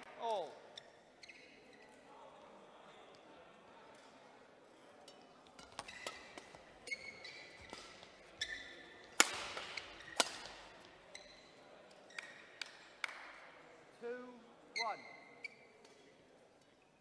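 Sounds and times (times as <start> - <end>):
shoes squeaking on court: 0.8 - 1.9, 5.5 - 12.6, 14.8 - 15.8
racket hitting shuttlecock: 5.5 - 10.9.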